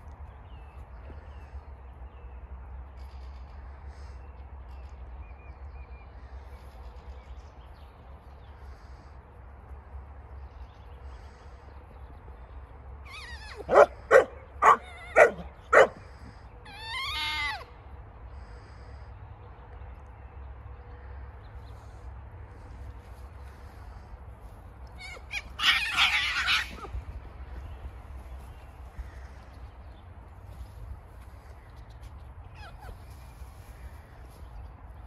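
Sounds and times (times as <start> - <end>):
dog barking: 13.6 - 16.0.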